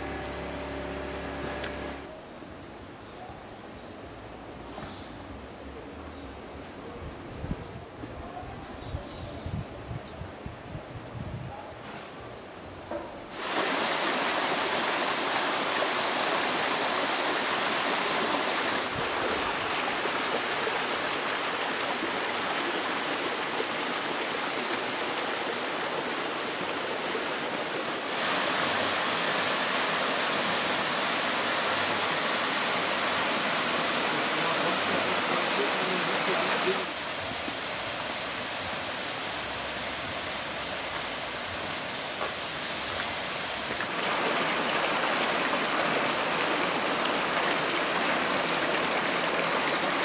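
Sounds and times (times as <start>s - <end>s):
waterfall rushing: 0.0s - 2.1s, 13.3s - 50.0s.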